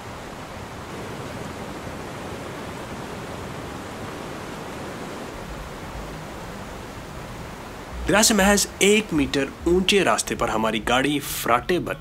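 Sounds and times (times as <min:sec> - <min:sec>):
river rushing over boulders: 0:00.0 - 0:11.8.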